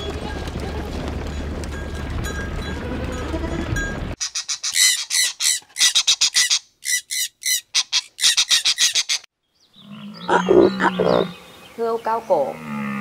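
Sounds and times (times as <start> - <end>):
bird squawking: 4.2 - 9.3, 9.9 - 11.4.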